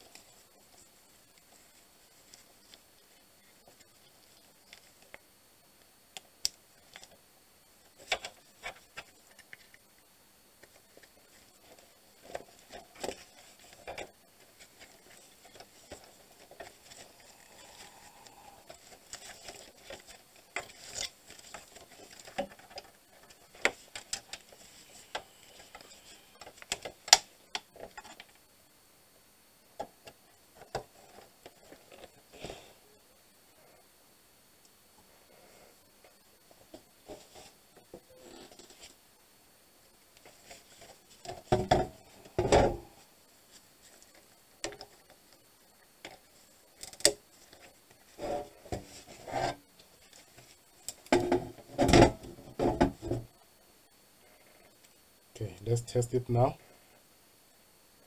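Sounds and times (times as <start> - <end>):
soft rustling: 0.0 - 5.3, 7.8 - 26.6.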